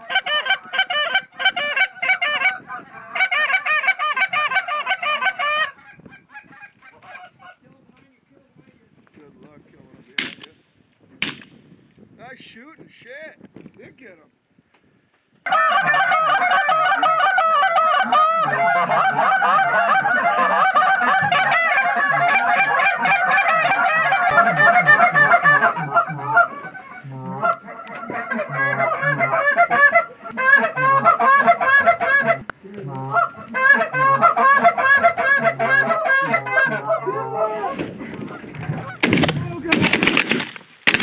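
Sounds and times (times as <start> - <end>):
geese honking: 0.0 - 7.6, 15.5 - 39.3.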